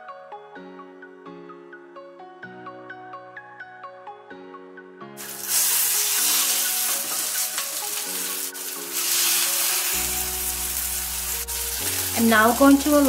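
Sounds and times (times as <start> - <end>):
soft background music: 0.0 - 13.0
patties sizzling in oil: 5.2 - 13.0.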